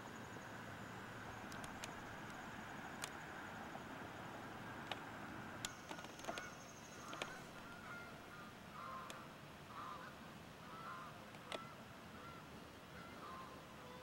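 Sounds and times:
background hiss: 0.0s - 14.0s
sharp clicks: 1.5s - 2.4s, 5.6s - 7.6s
faint bird calls: 5.7s - 14.0s.

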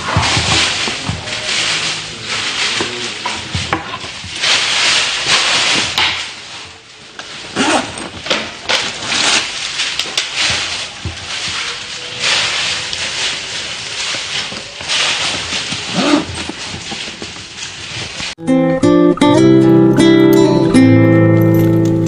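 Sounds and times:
handbag rustling and unzipping: 7.5s - 8.2s, 14.0s - 18.3s
acoustic guitar music: 18.4s - 22.0s.

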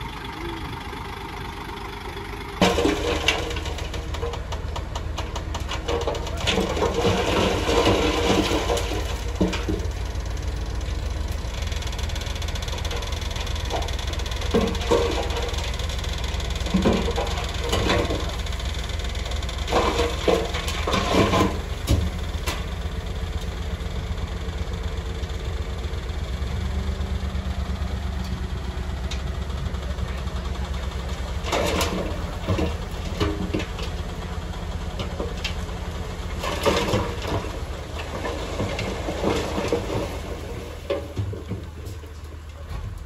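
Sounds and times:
bulldozer diesel engine rumbling: 0.0s - 43.0s
clanking and rattling: 2.6s - 22.8s, 30.1s - 43.0s.

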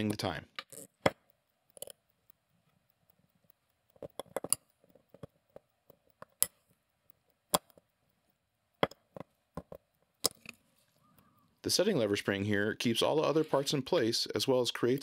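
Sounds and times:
tweezers clicking on metal parts: 0.6s - 9.2s.

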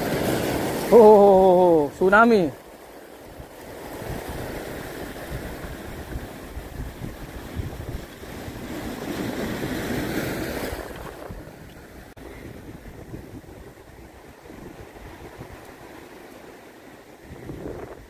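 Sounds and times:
waves washing over rocks: 0.0s - 18.0s
wind buffeting microphone: 3.2s - 16.2s, 17.1s - 18.0s.

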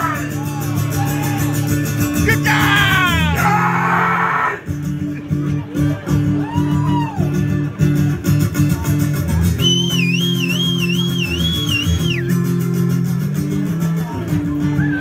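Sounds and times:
live rock band playing: 0.0s - 15.0s
high whistle-like tone: 9.6s - 12.4s.

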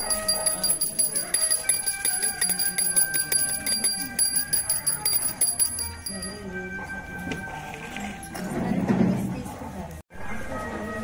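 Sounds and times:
temple bell ringing: 0.0s - 7.1s.

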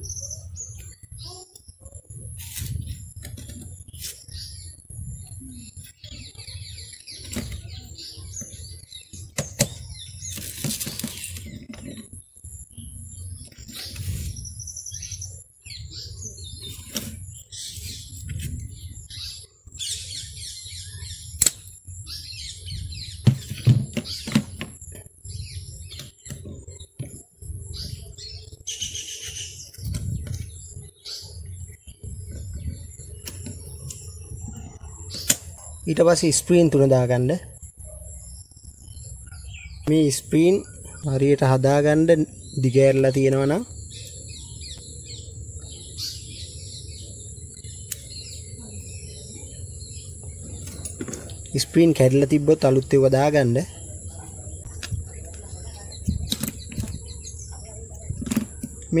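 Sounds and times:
handling noise: 7.1s - 12.2s, 23.2s - 25.1s, 50.2s - 53.1s, 54.2s - 59.0s.

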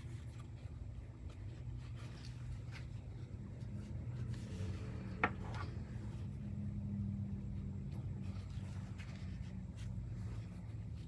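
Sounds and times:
steady low hum: 0.0s - 11.0s
fabric handled on wooden table: 0.4s - 6.4s.

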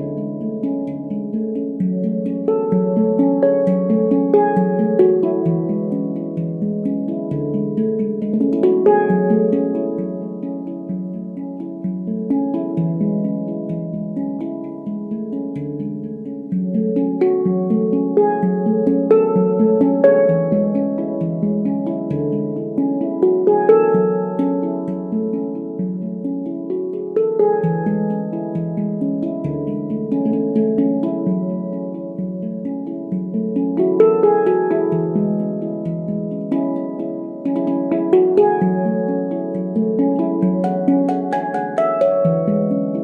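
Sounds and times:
handpan played with fingers: 0.0s - 43.0s.

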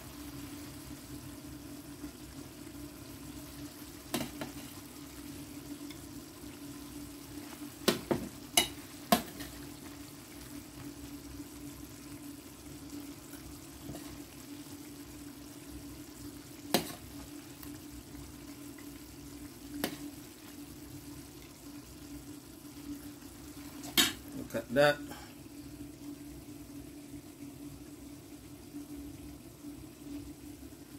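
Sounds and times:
curry simmering and bubbling: 0.0s - 30.9s.

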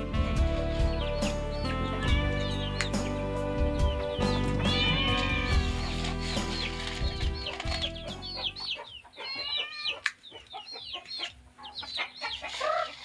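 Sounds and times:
background music: 0.0s - 9.1s
chicks peeping: 0.0s - 13.0s
chicken clucking: 3.9s - 13.0s.

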